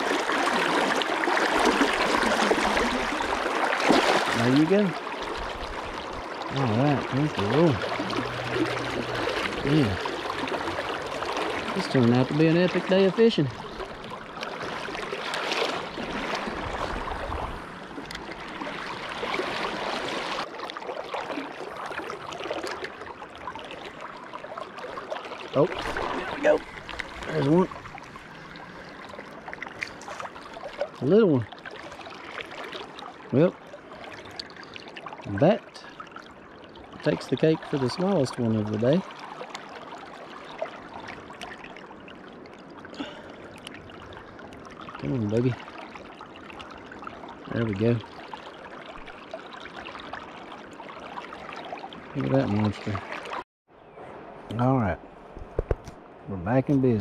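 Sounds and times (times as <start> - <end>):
river water flowing: 0.0 - 57.0
low rumble: 7.0 - 11.3.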